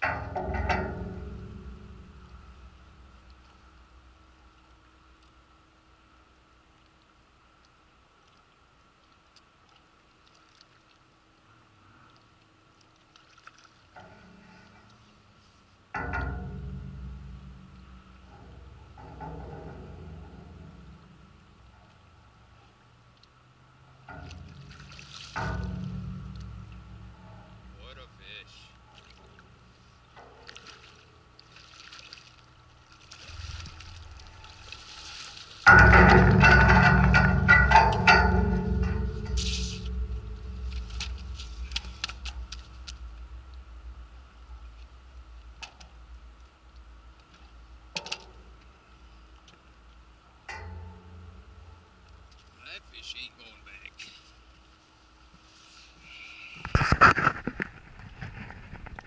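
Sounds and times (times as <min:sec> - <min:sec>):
faint ticks: 0:06.8 - 0:15.2
fish splashing in water: 0:30.4 - 0:35.7.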